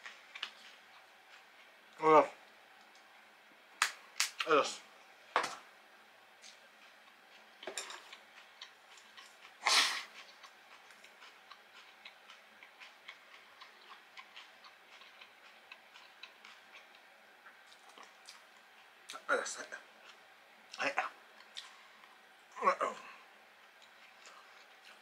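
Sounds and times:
crunching of fried food being chewed: 0:00.0 - 0:01.8, 0:06.4 - 0:22.2, 0:23.5 - 0:25.0.

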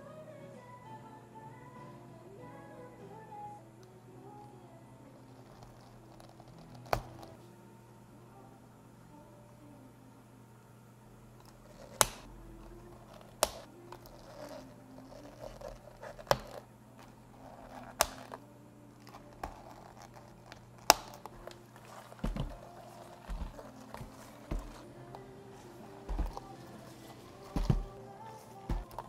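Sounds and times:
plastic crinkling: 0:11.5 - 0:18.4, 0:19.0 - 0:29.0.

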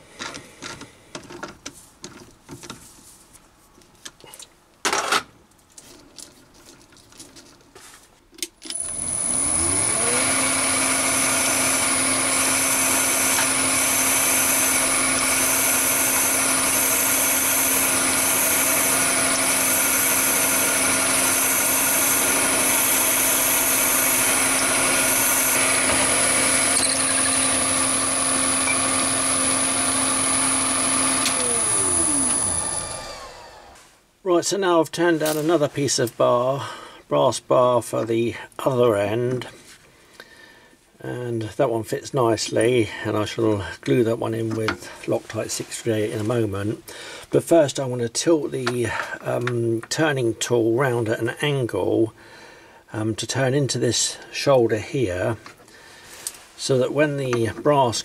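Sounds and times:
drill boring into stone: 0:08.7 - 0:33.8
lathe motor whining: 0:08.7 - 0:33.8.

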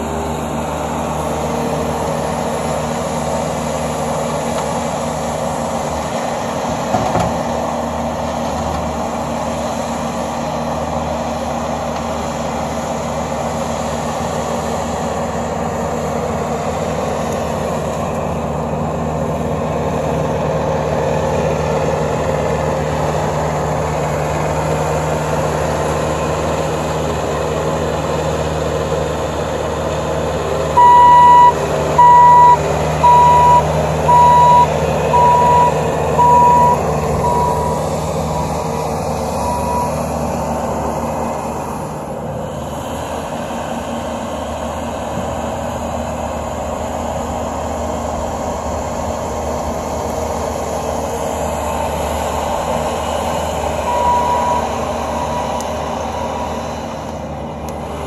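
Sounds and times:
diesel engine running: 0:00.0 - 0:58.0
backup alarm beeping: 0:30.8 - 0:37.8, 0:39.5 - 0:40.0, 0:53.9 - 0:55.6.

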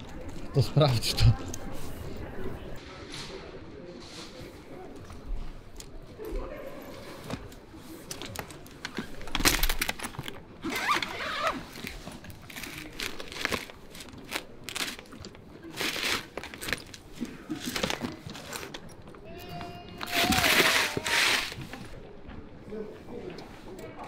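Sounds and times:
bag rustling and crinkling: 0:09.0 - 0:19.1.

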